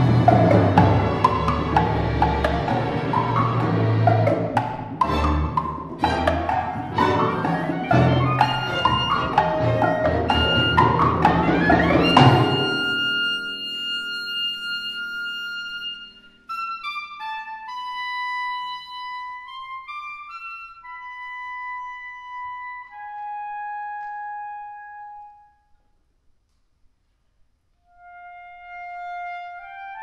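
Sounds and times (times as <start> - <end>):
percussion hit: 0.0 - 13.1
chamber orchestra playing: 0.0 - 25.3
solo clarinet melody: 6.0 - 25.6, 27.8 - 30.0.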